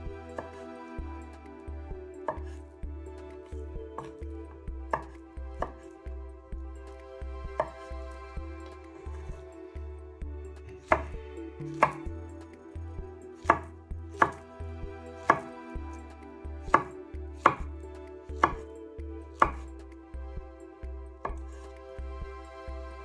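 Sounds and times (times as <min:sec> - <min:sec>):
knife chopping on cutting board: 0:13.4 - 0:14.4, 0:15.2 - 0:15.5, 0:16.7 - 0:17.6, 0:18.4 - 0:18.6, 0:19.4 - 0:19.6.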